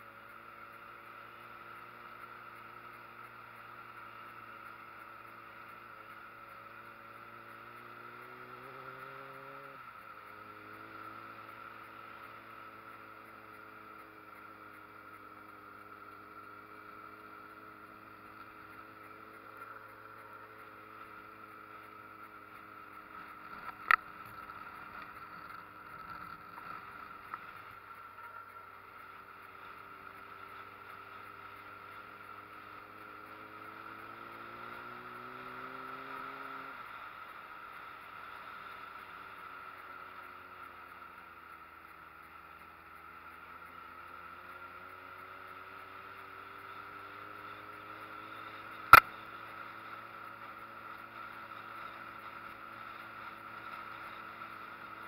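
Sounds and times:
motorcycle engine revving: 0.0s - 55.0s
sharp click: 48.9s - 49.1s.

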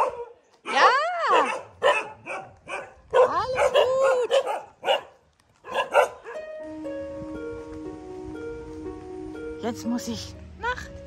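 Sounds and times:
dog barking and yelping: 0.0s - 6.5s
background music: 5.8s - 11.0s.

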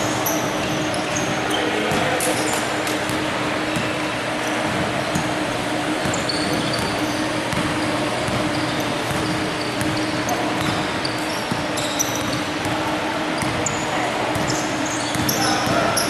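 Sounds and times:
steady hall hum: 0.0s - 16.0s
basketball dribbling on hardwood floor: 6.0s - 10.9s
short high squeaks: 6.1s - 12.4s.

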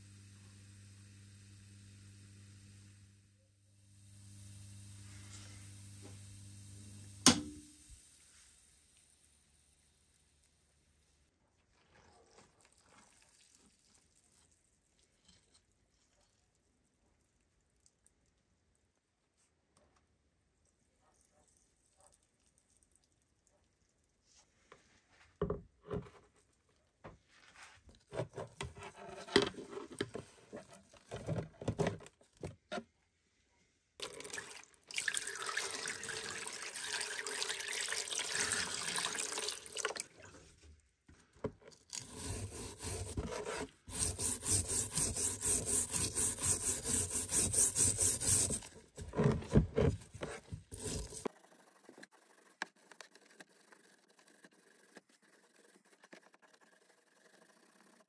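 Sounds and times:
liquid splashing in a tub: 34.0s - 40.6s
brush scrubbing underwater: 42.0s - 58.0s.

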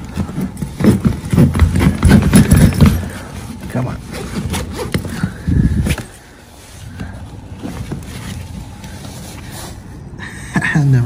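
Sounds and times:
knocks and thumps: 0.0s - 6.1s
fabric bag rustling: 0.0s - 10.0s.

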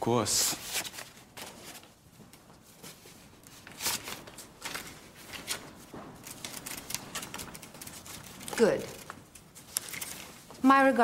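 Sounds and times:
papers rustling: 0.4s - 10.6s.

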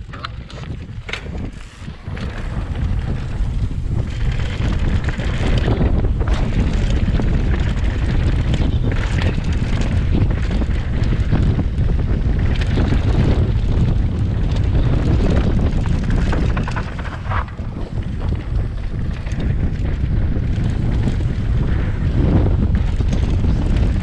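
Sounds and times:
wind buffeting microphone: 0.0s - 24.0s
bike knocking over ground: 0.1s - 7.4s.

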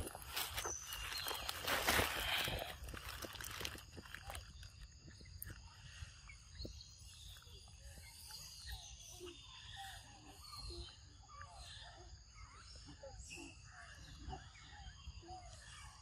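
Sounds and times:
footsteps on dry leaves: 0.0s - 4.8s
insect drone: 0.0s - 12.7s.

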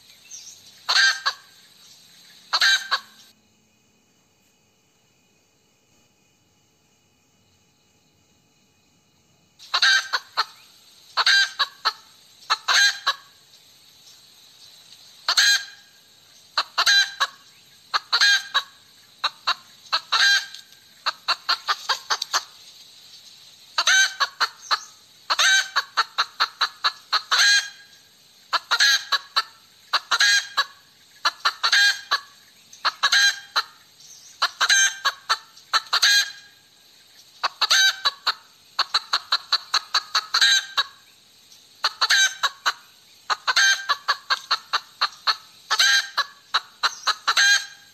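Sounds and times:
hen cackling: 0.9s - 1.6s, 2.5s - 3.3s, 9.6s - 10.6s, 11.2s - 13.4s, 15.2s - 22.6s, 23.8s - 36.6s, 37.4s - 41.1s, 41.8s - 47.9s.

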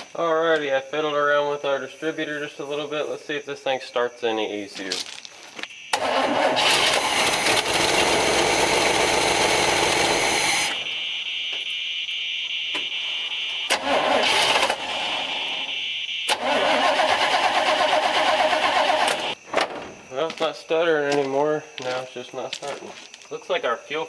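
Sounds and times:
engine cranking on starter: 5.9s - 10.8s, 13.7s - 15.6s, 16.3s - 19.4s.

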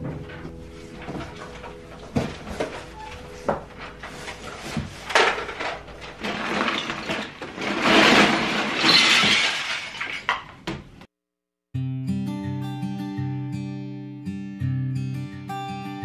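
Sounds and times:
plastic toys clattering: 0.4s - 10.8s.

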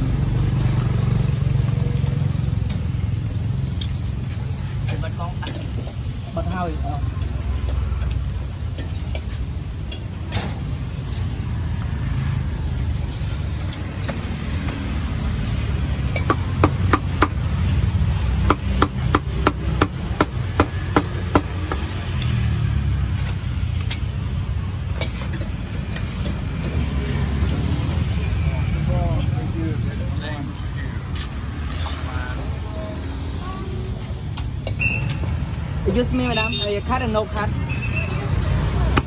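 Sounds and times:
low rumble of street traffic: 0.0s - 39.0s.

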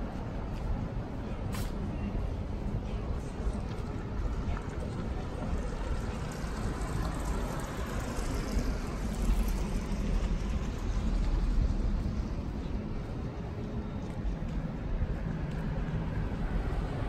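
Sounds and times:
traffic rumble and hiss: 0.0s - 17.0s.

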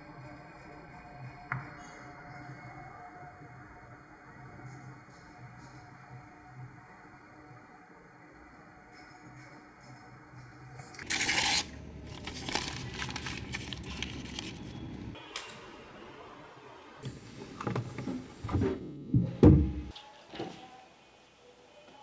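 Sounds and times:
paper ripping: 11.0s - 14.8s
paper crumpling: 11.0s - 15.0s.

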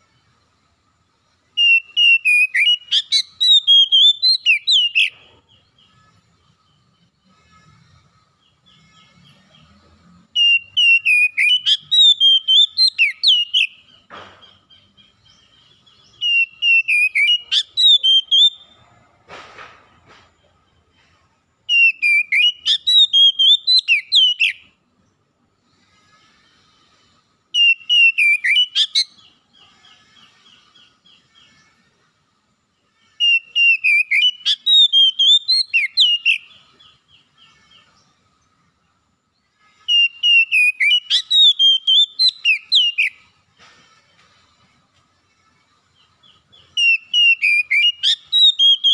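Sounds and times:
bird singing whistled notes: 1.5s - 18.8s, 21.6s - 24.8s, 27.5s - 31.8s, 33.2s - 38.6s, 39.4s - 43.4s, 45.8s - 48.9s.

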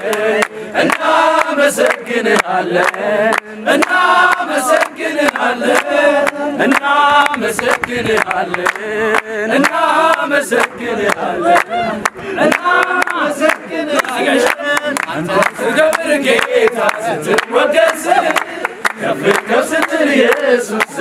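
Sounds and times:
hand clapping: 0.0s - 21.0s
men singing and chanting: 0.0s - 21.0s.

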